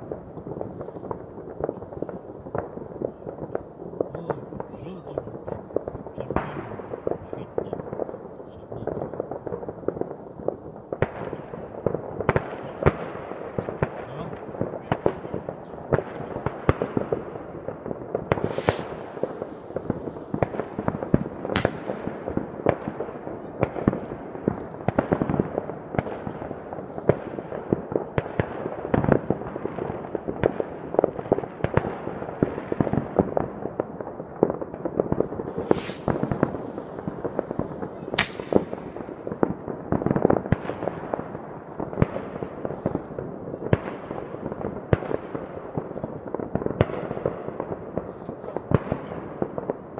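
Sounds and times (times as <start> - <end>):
fireworks crackling: 0.0 - 48.1
sharp firecracker cracks: 18.2 - 22.7, 35.4 - 39.3.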